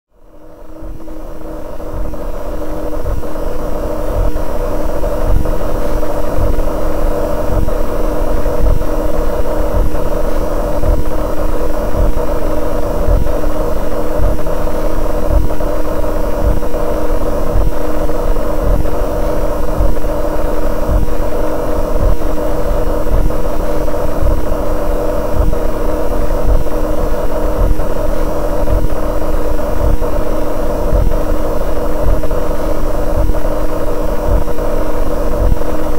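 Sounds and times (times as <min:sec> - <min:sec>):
buzzing electronic drone: 0:00.1 - 0:35.9
low pulsing rumble: 0:00.2 - 0:35.9.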